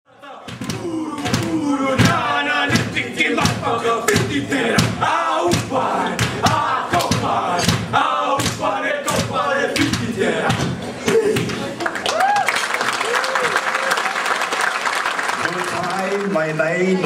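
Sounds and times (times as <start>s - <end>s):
hand slaps: 5.5s - 7.8s.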